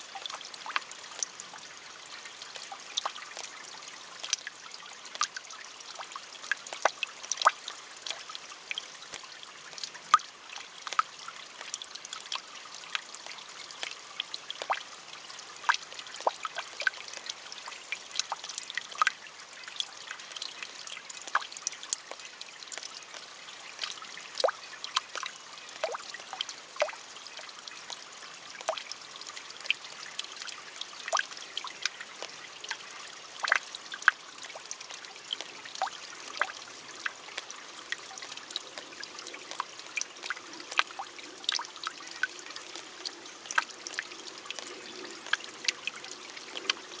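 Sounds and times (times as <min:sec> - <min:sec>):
soft hiss of rain: 0:00.0 - 0:47.0
raindrops tapping on leaves: 0:31.1 - 0:32.8, 0:33.4 - 0:47.0.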